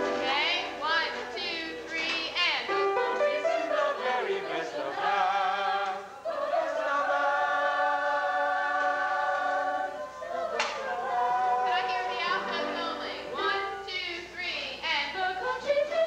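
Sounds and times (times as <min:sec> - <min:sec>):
choir singing in harmony: 0:02.5 - 0:13.9, 0:14.9 - 0:16.0.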